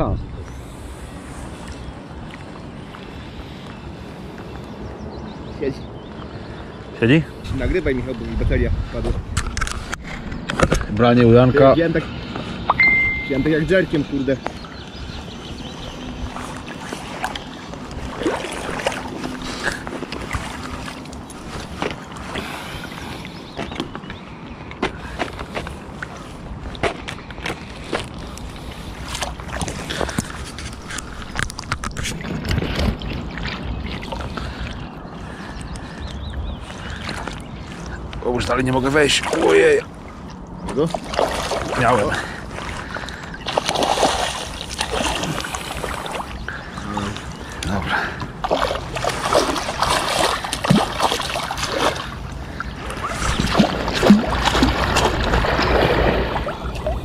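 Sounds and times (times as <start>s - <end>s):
water sloshing around a landing net: 15.7s - 23.9s, 32.1s - 34.8s, 38.9s - 57.0s
small splashes and knocks: 16.3s - 22.5s, 29.1s - 34.8s, 39.1s - 46.4s, 47.1s - 57.0s.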